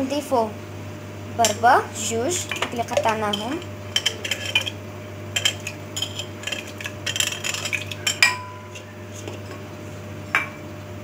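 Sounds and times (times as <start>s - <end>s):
metal spoon scraping a plate: 2.4s - 4.8s, 5.4s - 9.6s.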